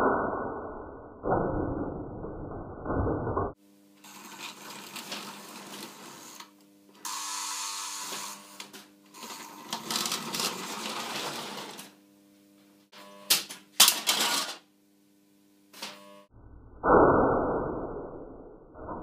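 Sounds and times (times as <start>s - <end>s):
steady electrical hum: 3.5s - 16.3s
toy train wheels rolling: 4.0s - 6.5s, 9.2s - 11.9s.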